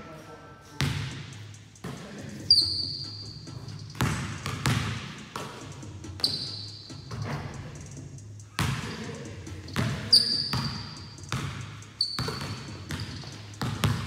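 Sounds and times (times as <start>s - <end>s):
basketballs bouncing on hardwood: 3.9s - 5.6s, 8.6s - 14.0s.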